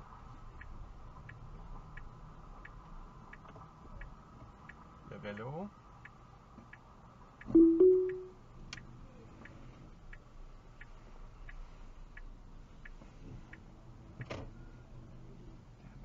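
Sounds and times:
turn signal ticking: 0.5s - 13.7s
low steady hum: 7.6s - 8.4s.

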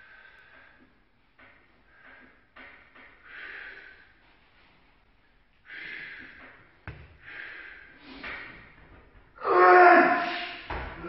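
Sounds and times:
person breathing hard: 0.0s - 1.0s, 1.8s - 4.4s, 5.6s - 8.8s.

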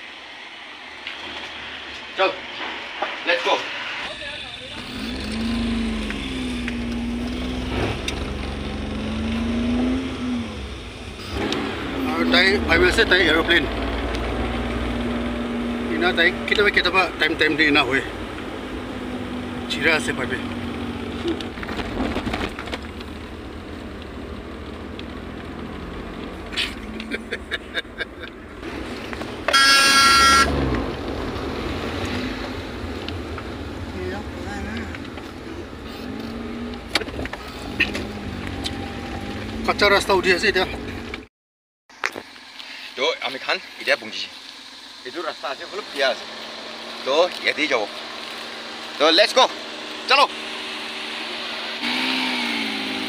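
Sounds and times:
car engine and road rumble: 0.0s - 41.3s, 41.9s - 53.0s
car horn beeping: 29.5s - 30.7s.

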